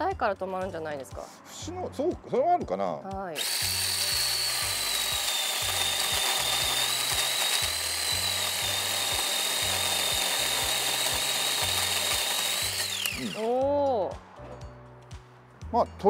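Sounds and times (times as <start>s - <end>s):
electric chainsaw cutting log: 3.4s - 13.6s.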